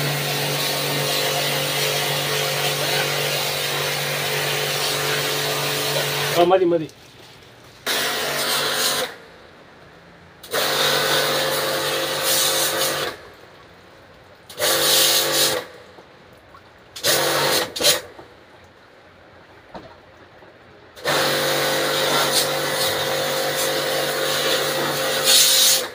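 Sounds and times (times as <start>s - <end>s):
pressure washer motor hum: 0.0s - 6.8s, 7.8s - 9.2s, 10.4s - 13.2s, 14.5s - 15.6s, 17.0s - 18.1s, 21.0s - 25.9s
water jet hissing: 0.0s - 6.9s, 7.8s - 9.2s, 10.4s - 13.2s, 14.5s - 15.8s, 17.0s - 18.1s, 21.0s - 25.9s.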